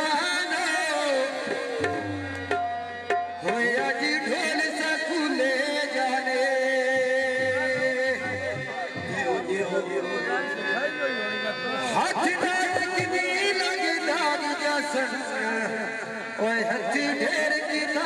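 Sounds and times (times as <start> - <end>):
man singing through microphone: 0.0 - 2.6, 3.4 - 18.0
held instrumental notes: 1.7 - 4.5
hand drum: 1.8 - 3.7.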